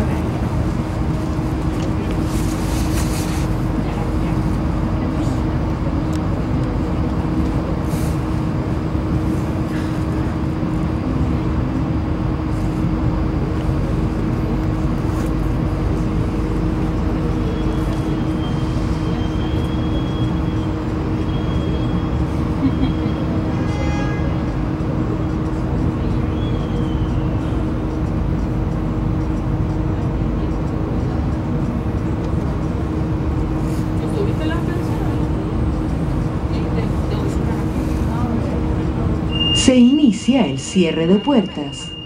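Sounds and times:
constant hum: 0.0 - 42.0
train wheels rumbling on rails: 0.0 - 42.0
thin high whine: 39.3 - 42.0.

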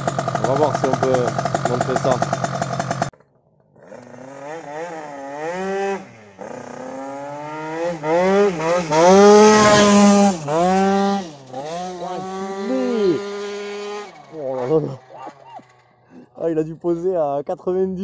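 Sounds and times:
scooter engine revving: 0.0 - 3.1, 3.7 - 16.6.

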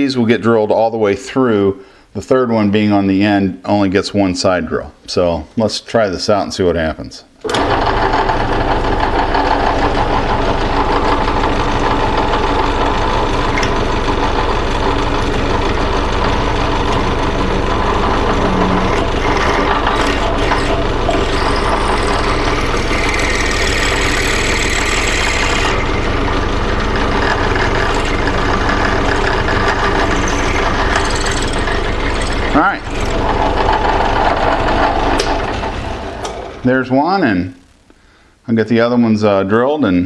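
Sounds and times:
drill press motor running: 7.4 - 36.6
drill cutting metal: 7.5 - 35.8.

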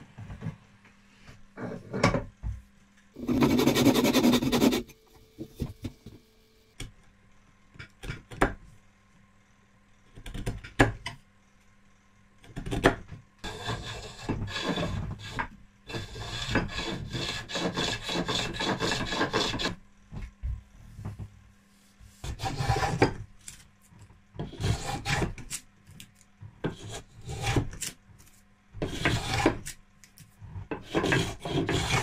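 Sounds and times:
hand plane rasping wood: 3.2 - 4.9, 13.5 - 19.7, 22.2 - 23.0, 28.8 - 29.6, 30.8 - 32.0
saw cutting wood: 3.2 - 5.0, 30.8 - 32.0.

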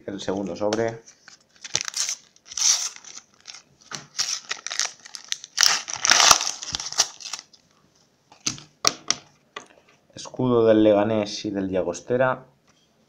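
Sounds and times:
wrapper tearing and crinkling: 1.1 - 7.6.

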